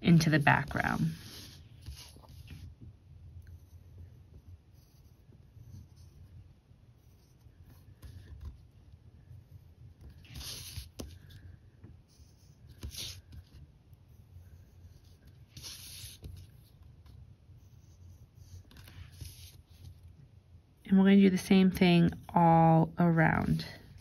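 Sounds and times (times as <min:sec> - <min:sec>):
pencil scratching on paper: 0:00.4 - 0:02.7, 0:03.4 - 0:11.5, 0:12.1 - 0:20.1.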